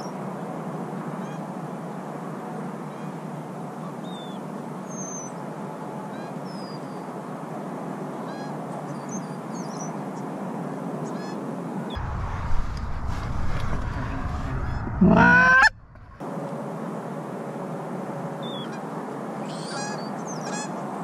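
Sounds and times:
geese honking faintly: 0:08.2 - 0:09.0, 0:11.0 - 0:16.2, 0:19.5 - 0:20.8.

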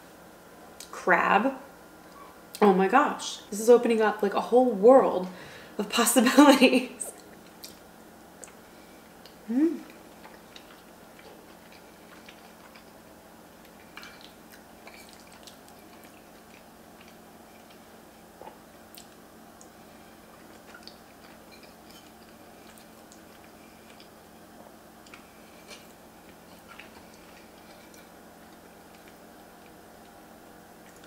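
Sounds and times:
quiet chewing: 0:07.1 - 0:31.0
woman humming with mouth full: 0:09.4 - 0:10.0.

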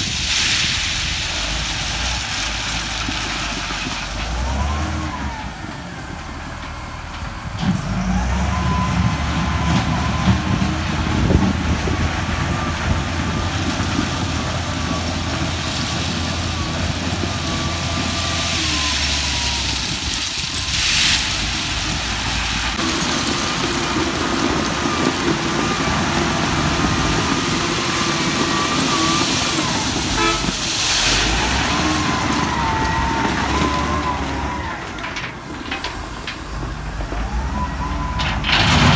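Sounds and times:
diesel engine working under load: 0:00.0 - 0:38.9
crushed rock rattling in bucket: 0:10.4 - 0:33.6.

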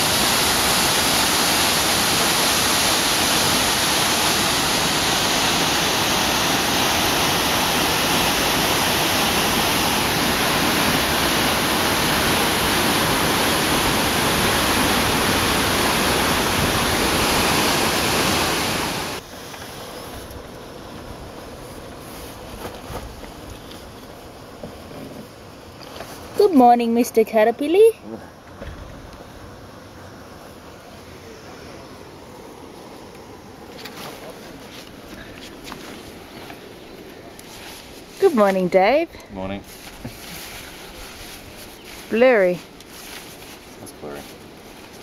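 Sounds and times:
waterfall rushing: 0:00.0 - 0:19.2.

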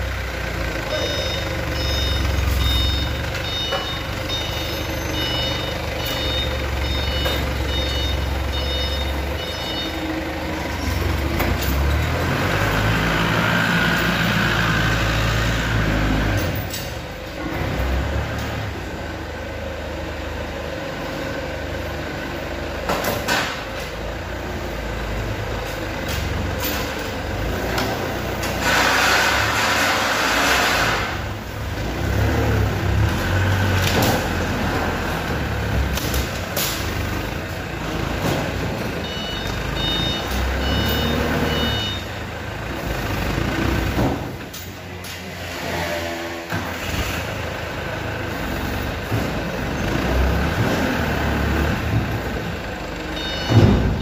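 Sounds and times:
forklift engine running: 0:00.0 - 0:54.0
reversing alarm beeping: 0:00.9 - 0:10.2, 0:39.0 - 0:42.2, 0:53.1 - 0:54.0.

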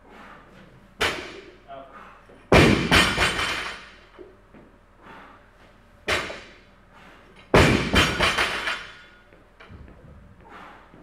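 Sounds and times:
barbell dropped on rubber floor: 0:02.5 - 0:04.0, 0:06.1 - 0:06.5, 0:07.5 - 0:09.1.

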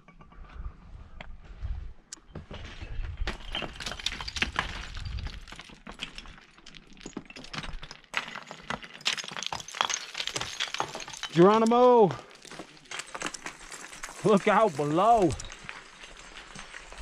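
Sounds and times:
boots crunching over rocks: 0:10.1 - 0:17.0.

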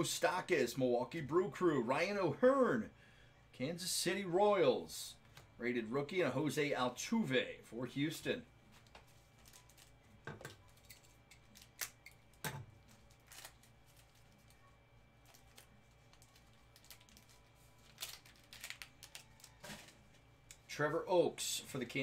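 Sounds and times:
soft rustling of cards: 0:08.6 - 0:20.8.

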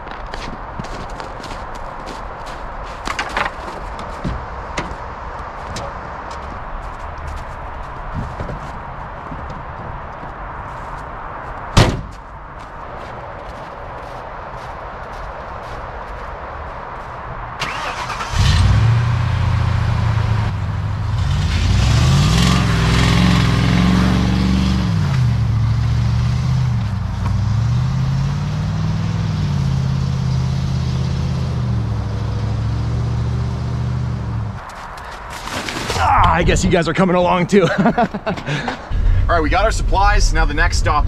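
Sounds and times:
van engine cranking: 0:17.6 - 0:19.0
van engine revving: 0:17.6 - 0:34.6.

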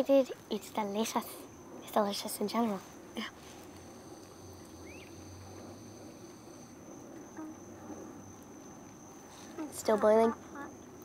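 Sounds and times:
insects trilling: 0:00.0 - 0:11.0.

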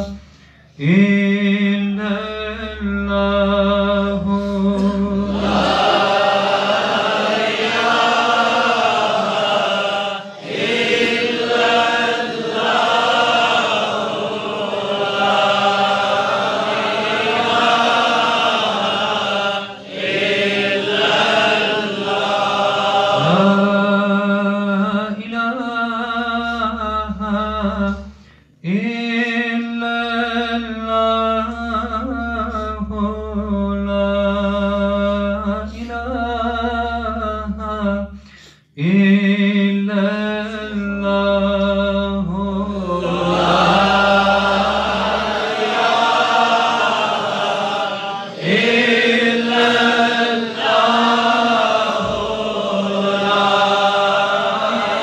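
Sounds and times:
man chanting: 0:00.0 - 0:06.8, 0:11.3 - 0:55.0
men's voices chanting together: 0:05.3 - 0:23.7, 0:43.0 - 0:55.0.

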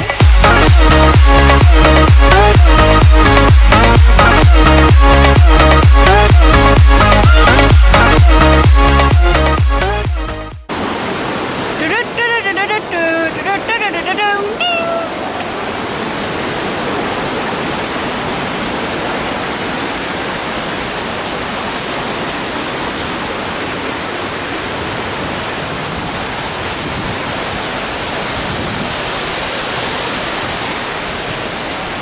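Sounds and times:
waterfall rushing: 0:00.0 - 0:32.0.

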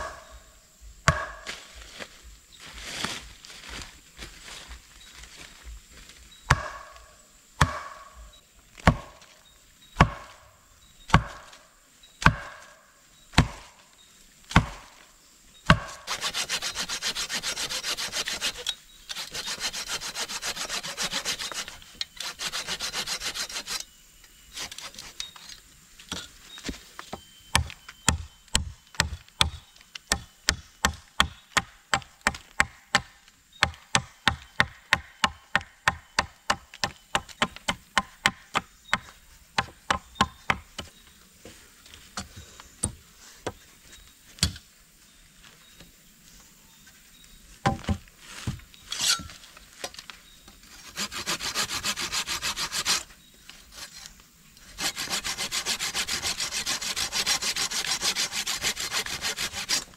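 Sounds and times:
hatchet tapping wood: 0:01.1 - 0:01.4, 0:27.5 - 0:40.9
blade chopping into wood: 0:01.1 - 0:01.5, 0:06.5 - 0:07.0, 0:07.6 - 0:08.0, 0:08.8 - 0:09.2, 0:10.0 - 0:10.4, 0:11.1 - 0:11.5, 0:12.2 - 0:12.6, 0:13.4 - 0:13.7, 0:14.5 - 0:14.9
hand saw cutting wood: 0:15.7 - 0:23.8, 0:50.7 - 0:53.1, 0:53.7 - 0:59.9.

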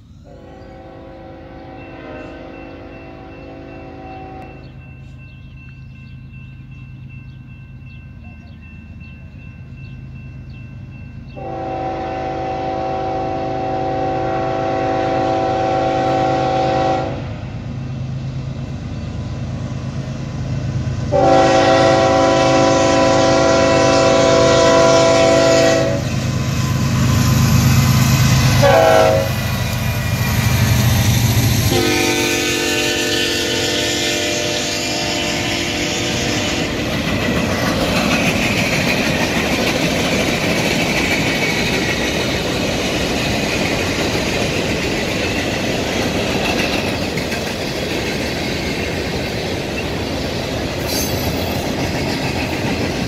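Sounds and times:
diesel locomotive engines running: 0:00.0 - 0:53.0
locomotive air horn: 0:00.3 - 0:04.7, 0:11.4 - 0:17.4, 0:21.1 - 0:26.1, 0:28.5 - 0:29.4, 0:31.6 - 0:36.9.

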